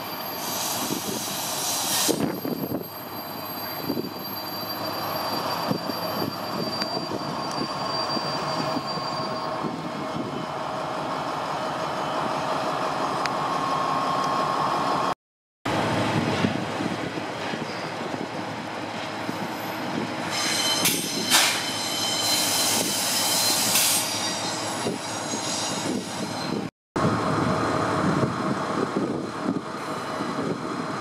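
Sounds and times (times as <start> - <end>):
wheel and rail noise: 0.0 - 15.1
diesel locomotive engine whine: 0.0 - 31.0.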